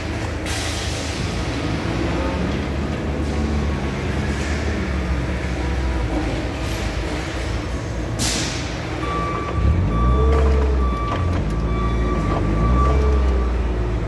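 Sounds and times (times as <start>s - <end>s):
forklift mechanical hum: 0.0s - 14.0s.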